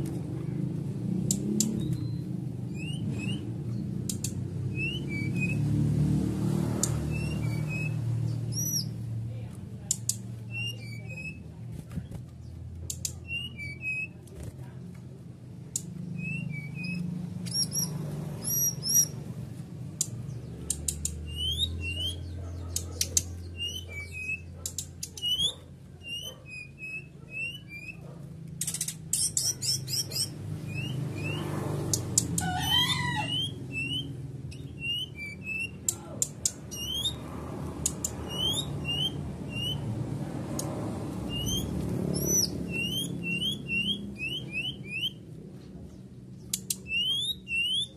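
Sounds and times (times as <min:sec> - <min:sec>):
bird whistles and chips: 0:25.0 - 0:28.0.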